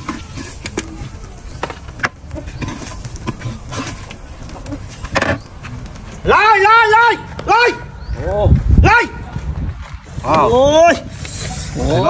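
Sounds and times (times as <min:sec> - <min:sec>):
metal ladle scraping a wok: 0:00.0 - 0:01.0, 0:01.6 - 0:04.2.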